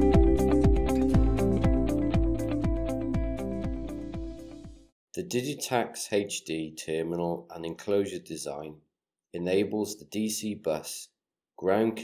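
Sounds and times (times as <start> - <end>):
held synth chords: 0.0 - 4.8
kick drum beat: 0.1 - 4.9.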